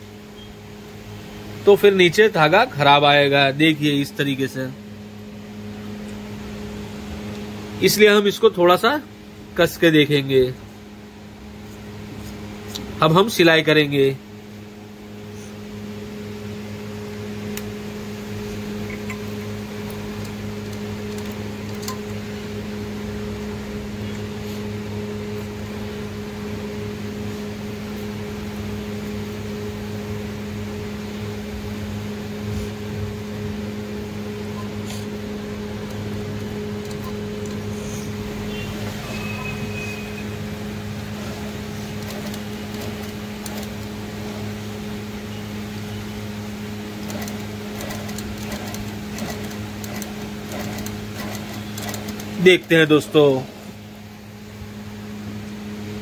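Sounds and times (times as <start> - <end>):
sewing machine motor humming: 40.2 - 44.5, 46.9 - 53.3.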